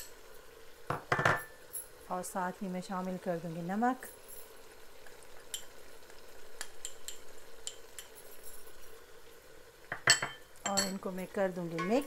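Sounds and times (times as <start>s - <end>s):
meat sizzling in a pot: 0.0s - 12.0s
sharp crackles and pops: 4.1s - 9.0s.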